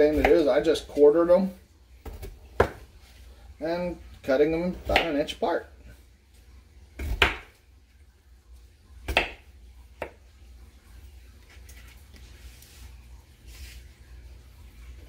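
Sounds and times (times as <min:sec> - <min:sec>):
knife chopping on plastic board: 0:02.1 - 0:02.8, 0:04.8 - 0:05.2, 0:07.0 - 0:07.6, 0:09.1 - 0:09.4, 0:10.0 - 0:10.2.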